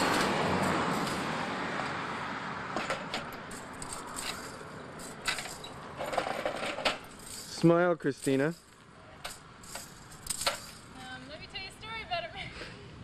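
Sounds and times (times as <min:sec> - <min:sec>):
broad rushing noise: 0:00.0 - 0:06.2.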